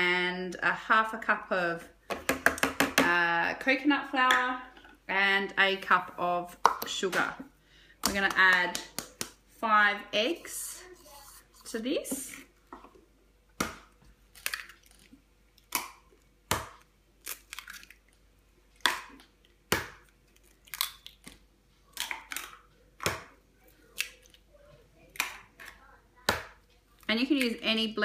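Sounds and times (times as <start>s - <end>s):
eggshells cracking: 14.3s - 23.2s.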